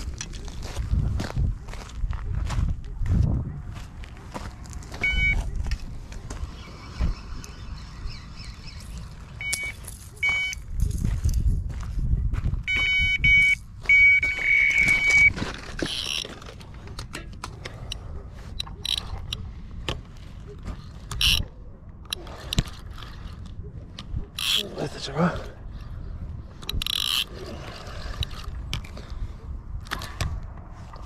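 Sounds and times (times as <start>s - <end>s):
electronic bite alarm beeping: 5.0s - 5.5s, 9.3s - 10.6s, 12.6s - 15.4s.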